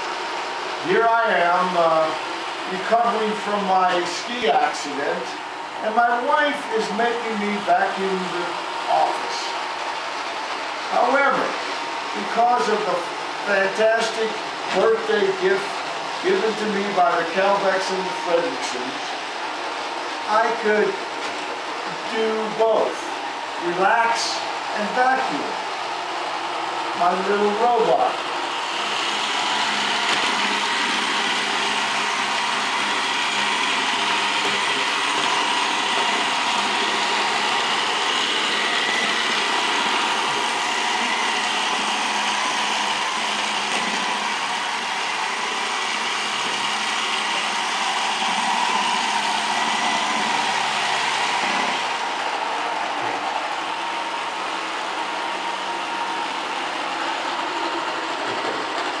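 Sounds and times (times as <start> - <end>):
robot vacuum cleaner motor whine: 22.4 - 58.9.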